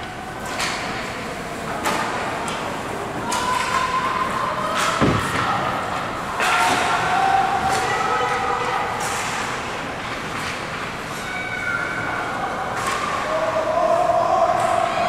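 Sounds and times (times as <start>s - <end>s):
heavy thud against rink boards: 4.9s - 5.7s.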